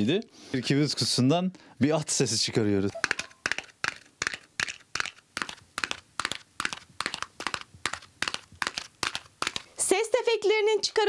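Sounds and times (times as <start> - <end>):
galloping hoofbeat clacks: 2.9 - 9.7.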